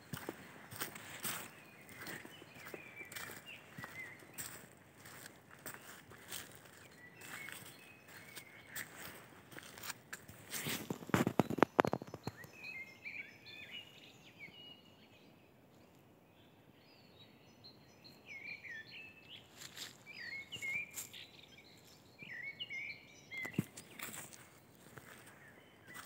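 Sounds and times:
footsteps crunching on dry leaves: 0.0 - 11.6, 19.5 - 21.2, 23.6 - 26.0
songbirds singing: 0.0 - 26.0.

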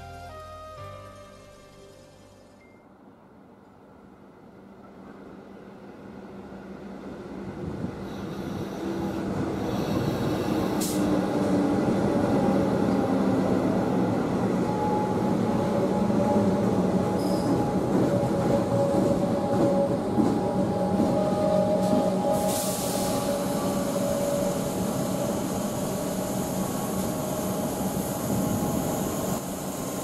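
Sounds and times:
electric train running along platform: 0.0 - 30.0.

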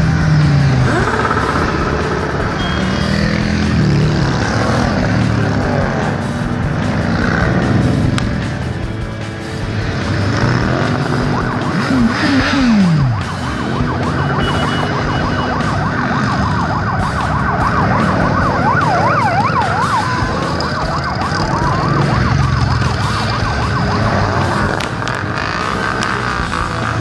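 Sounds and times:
siren yelping and wailing: 0.0 - 8.1, 10.2 - 27.0
motorcycles riding past: 0.0 - 27.0.

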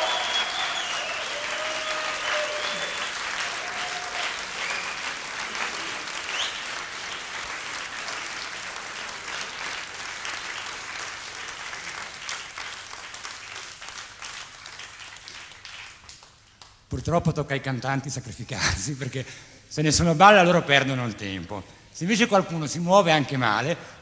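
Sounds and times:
brief cheers: 0.0 - 6.7
audience applauding: 0.0 - 16.8.

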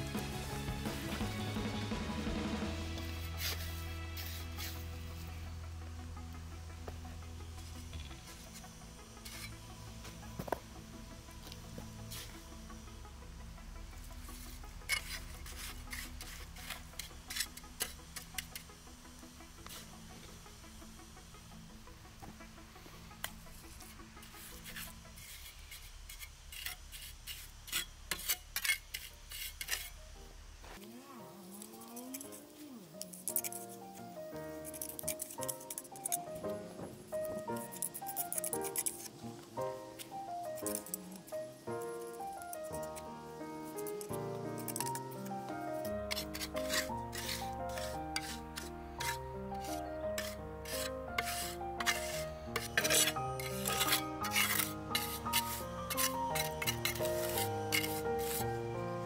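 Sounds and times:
background music: 0.0 - 25.8, 29.2 - 59.0
rasping rubbing strokes: 3.0 - 5.4, 14.2 - 18.7, 23.5 - 30.0, 30.8 - 58.6
short scrapes and rubs: 46.1 - 58.4.

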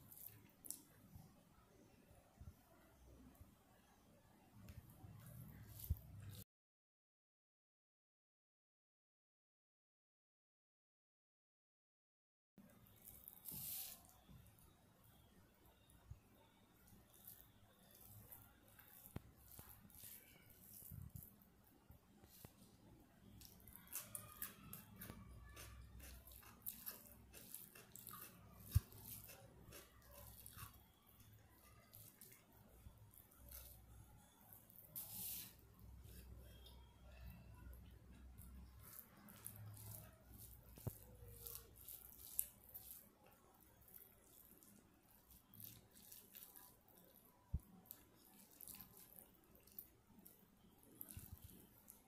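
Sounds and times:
wet eating clicks and crackles: 0.0 - 1.0, 23.3 - 33.9, 37.8 - 52.0.

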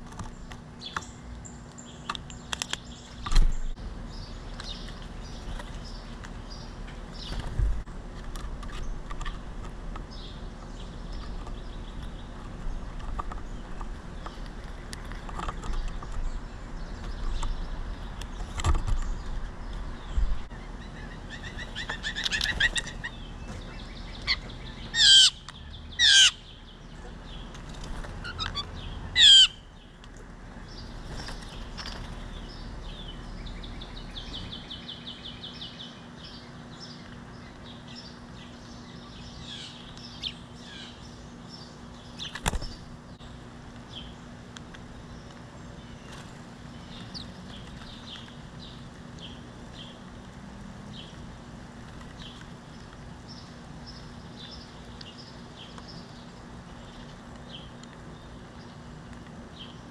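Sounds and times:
blue jay harsh calls: 20.5 - 26.7, 28.2 - 29.9.

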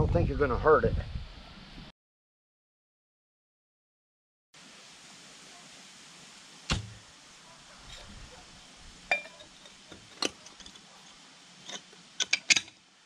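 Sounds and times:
metal tools knocking: 9.1 - 10.7, 11.7 - 12.8
faint metal clinking: 9.1 - 12.8.

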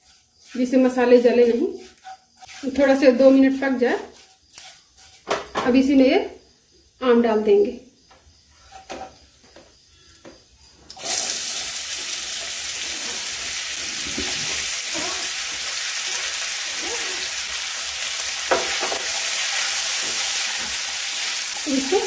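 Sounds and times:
spatula scraping and stirring: 0.0 - 5.7, 8.5 - 9.2, 12.3 - 17.3
food sizzling in hot oil: 0.0 - 7.2, 10.9 - 22.0.

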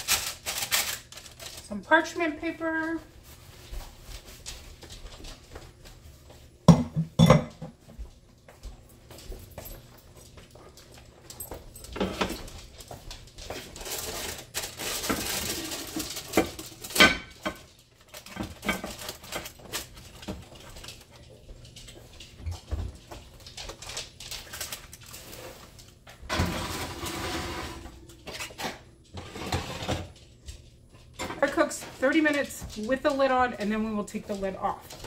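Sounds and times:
cookware knocking and clinking: 6.7 - 7.8.

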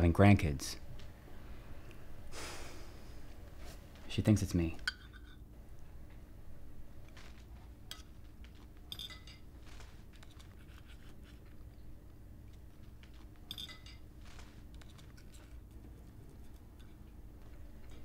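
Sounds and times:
knife and fork clinking on plate: 8.9 - 9.5, 13.2 - 14.1.

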